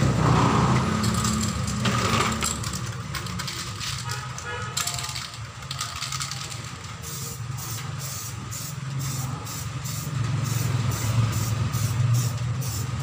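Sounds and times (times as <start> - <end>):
spray can hissing: 7.0 - 13.0.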